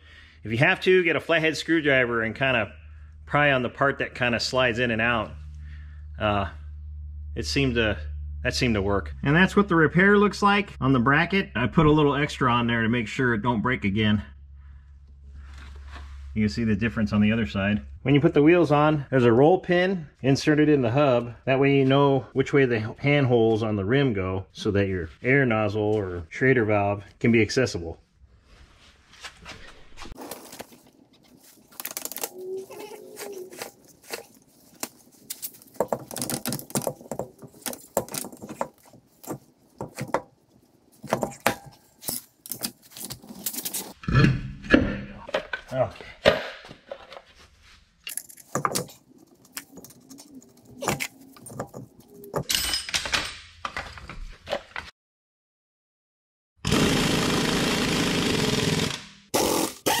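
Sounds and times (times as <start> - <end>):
metal clanks and knocks: 41.0 - 42.3
handheld power tool running: 56.6 - 60.0.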